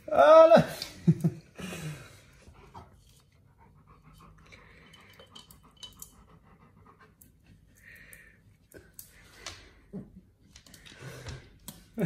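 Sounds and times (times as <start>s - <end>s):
dog panting faintly: 2.3s - 8.0s.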